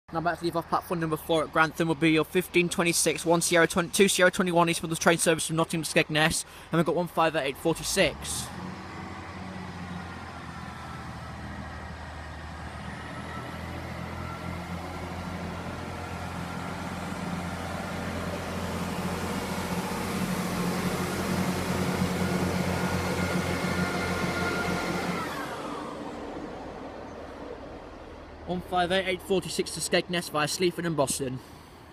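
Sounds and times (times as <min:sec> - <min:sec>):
diesel train accelerating past: 0:08.0 - 0:30.3.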